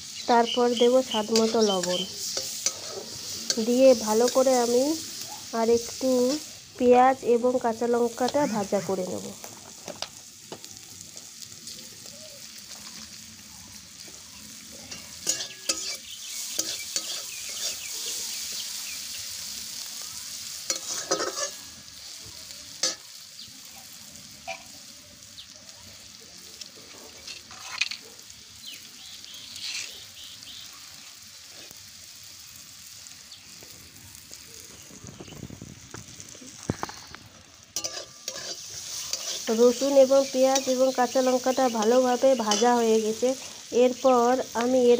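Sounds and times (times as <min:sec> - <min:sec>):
vegetables sizzling in oil: 0:00.0 - 0:44.9
metal spatula scraping pan: 0:01.3 - 0:04.8, 0:14.9 - 0:18.2, 0:20.7 - 0:21.7, 0:27.2 - 0:28.0, 0:37.8 - 0:42.8.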